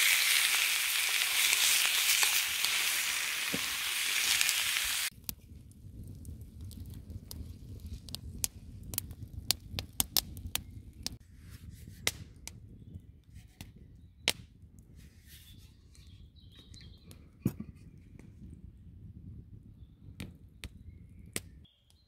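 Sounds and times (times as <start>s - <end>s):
campfire crackling and popping: 0.0s - 11.2s.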